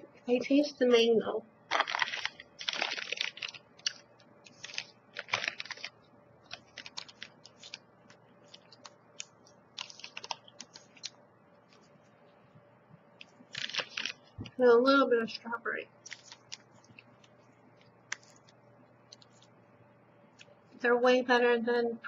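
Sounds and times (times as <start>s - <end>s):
person chewing crunchy bar: 1.7s - 7.8s, 8.4s - 11.2s.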